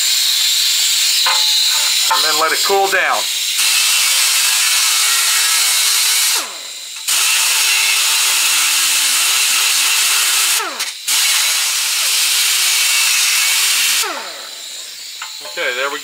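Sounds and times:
air grinder grinding metal: 0.0 - 16.0.

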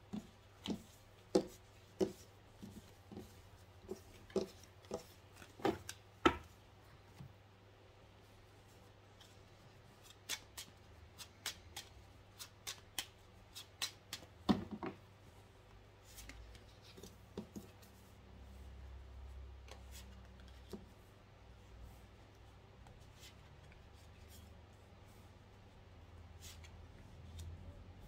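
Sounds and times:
cards shuffling: 9.2 - 14.3.

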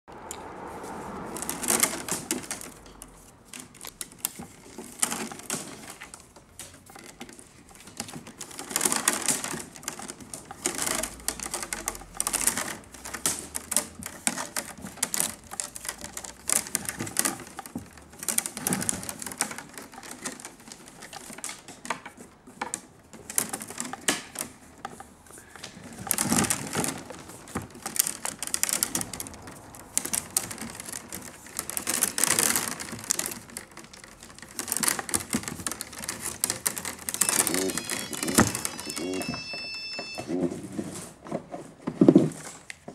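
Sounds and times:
wicker rods creaking and clicking: 0.1 - 42.9.

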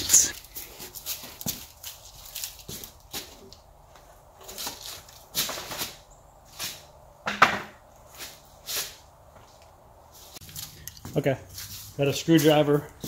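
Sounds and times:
footsteps crunching through dry leaves: 0.3 - 3.5, 8.0 - 12.9.

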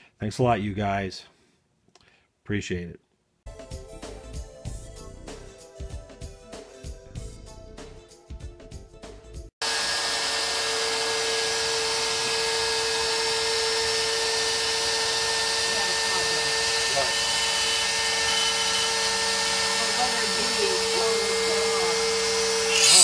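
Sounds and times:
router spindle whining: 9.7 - 23.0.

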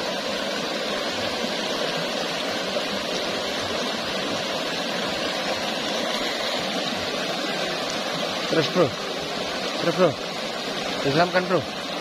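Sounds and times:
river water rushing over rocks: 0.0 - 12.0.

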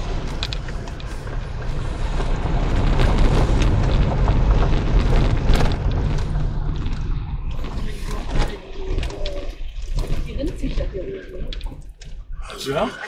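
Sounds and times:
vehicle rumbling off-road: 0.0 - 13.0.

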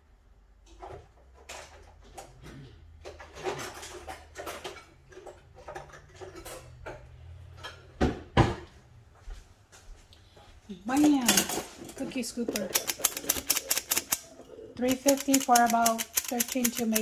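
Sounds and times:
metal utensils rattling in drawer: 3.1 - 6.8, 10.9 - 17.0.

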